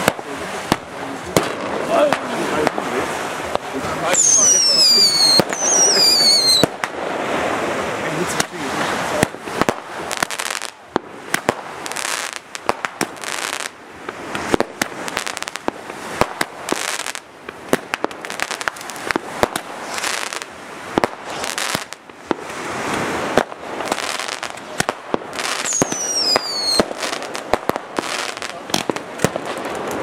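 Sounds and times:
fireworks bangs and cracks: 0.0s - 30.0s
hissing rush of fireworks: 0.0s - 30.0s.

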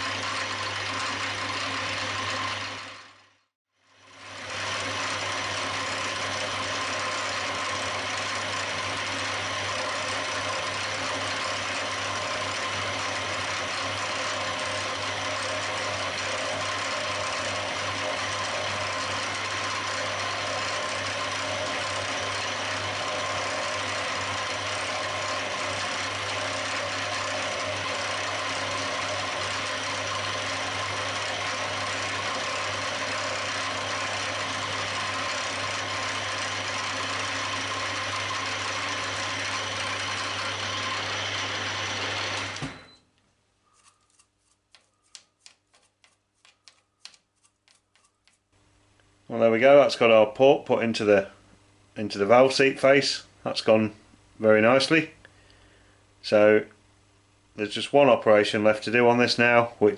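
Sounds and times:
milling machine running: 0.0s - 3.4s, 4.0s - 42.9s.

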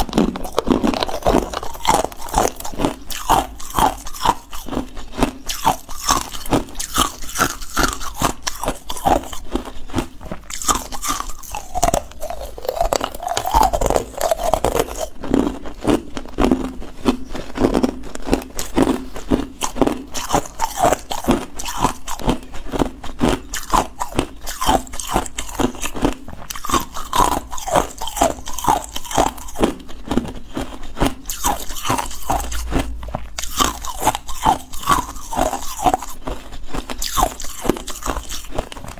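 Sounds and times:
ice cubes crunching: 0.0s - 38.9s.

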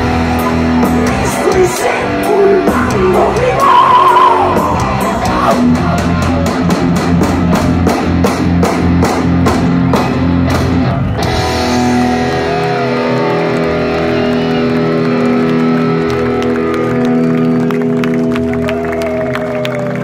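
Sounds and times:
lead guitar bending notes: 0.0s - 18.7s.

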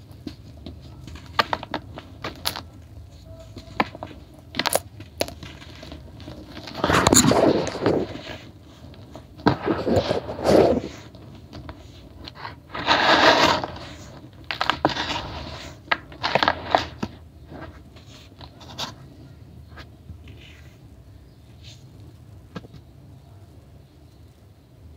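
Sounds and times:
hands crumbling dry powder: 0.0s - 19.1s.

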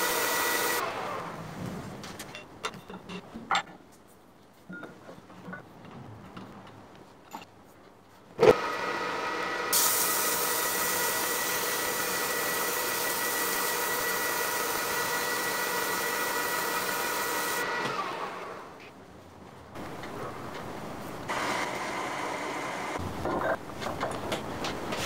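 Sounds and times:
metal lathe whining: 0.0s - 1.3s, 8.5s - 18.7s.

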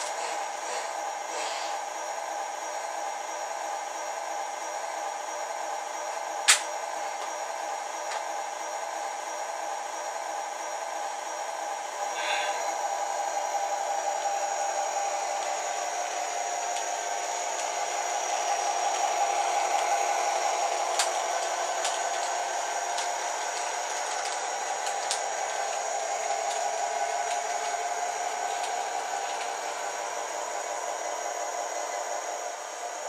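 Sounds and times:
toy train motor whirring: 0.0s - 1.8s, 15.2s - 30.3s.

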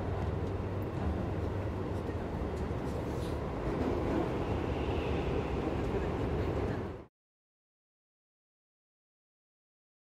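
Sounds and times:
wheels rumbling on rail: 0.0s - 7.1s.

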